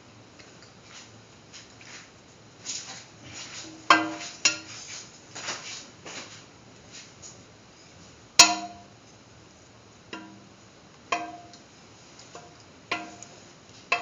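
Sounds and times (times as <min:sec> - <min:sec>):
spoon scraping pan: 0:12.4 - 0:14.0.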